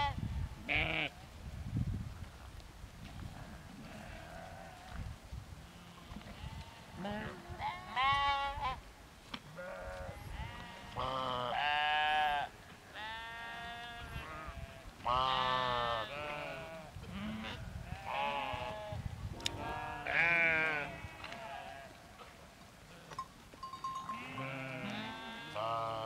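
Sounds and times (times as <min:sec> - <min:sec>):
sheep bleating: 0:00.7 - 0:01.1, 0:03.5 - 0:04.9, 0:09.6 - 0:23.2, 0:24.0 - 0:26.0.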